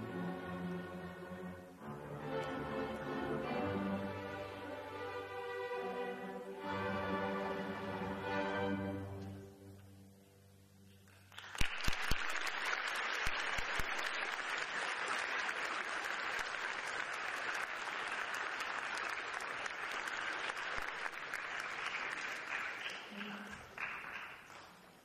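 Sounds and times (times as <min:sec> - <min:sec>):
music: 0:00.0 - 0:11.5
audience applause: 0:11.1 - 0:25.0.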